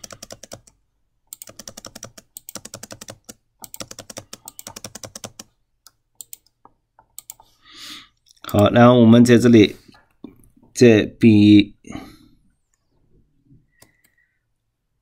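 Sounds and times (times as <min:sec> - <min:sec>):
keyboard typing: 0:00.0 - 0:07.5.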